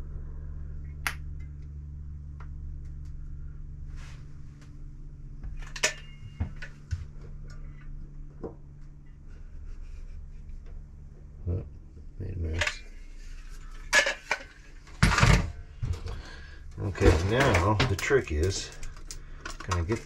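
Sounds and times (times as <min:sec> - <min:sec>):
steady low hum: 0:00.0 - 0:20.0
tools clinking and knocking: 0:05.6 - 0:06.8, 0:12.5 - 0:12.9, 0:13.8 - 0:16.1, 0:16.9 - 0:20.0.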